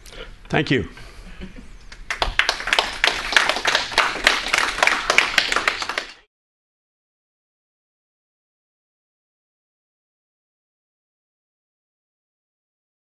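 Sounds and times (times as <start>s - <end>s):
audience applauding: 2.0s - 6.3s.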